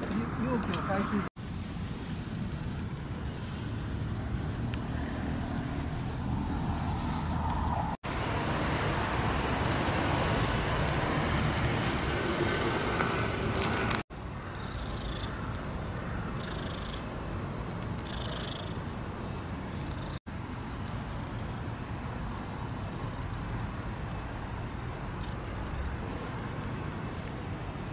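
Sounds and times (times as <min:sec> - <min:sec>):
cat purring: 0:16.4 - 0:17.1.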